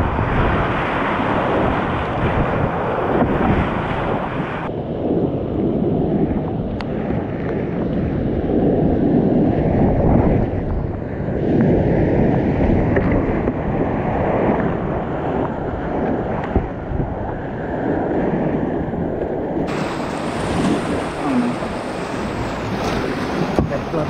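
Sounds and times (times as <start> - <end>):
whitewater rushing: 19.7 - 24.0.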